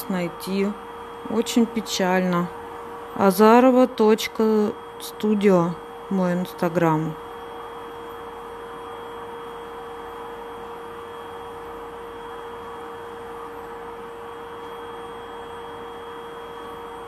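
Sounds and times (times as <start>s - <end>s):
high-pitched whine: 0.0s - 8.0s
mid-pitched hum: 0.0s - 17.0s.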